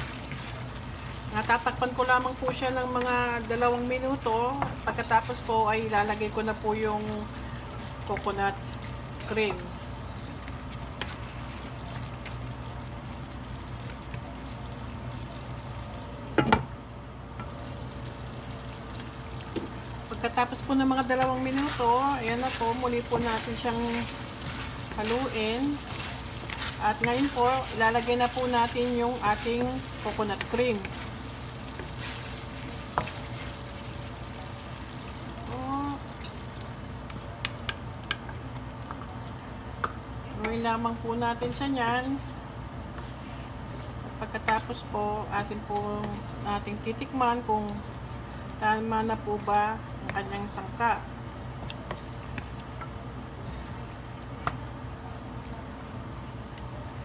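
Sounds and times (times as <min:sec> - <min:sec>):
wooden spatula stirring: 0:00.0 - 0:14.8, 0:18.9 - 0:42.2, 0:42.9 - 0:57.0
meat sizzling in a pan: 0:00.0 - 0:15.5, 0:17.5 - 0:39.0
low simmer: 0:00.0 - 0:57.0.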